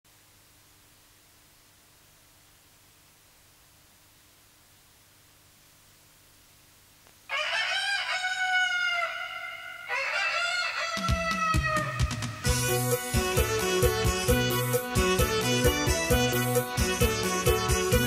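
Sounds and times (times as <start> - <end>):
rooster crowing: 7.3 - 12.2
folk-pop band music: 10.9 - 18.0.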